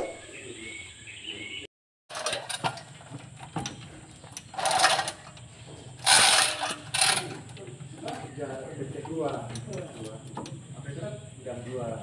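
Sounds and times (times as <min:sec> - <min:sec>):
chain rattling through hoist block: 0:02.1 - 0:10.6.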